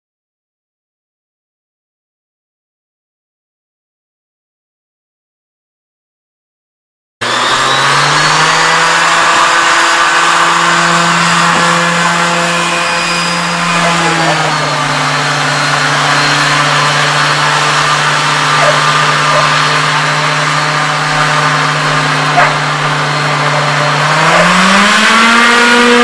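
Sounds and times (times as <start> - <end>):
hovercraft engine and fan roaring: 7.2 - 26.0.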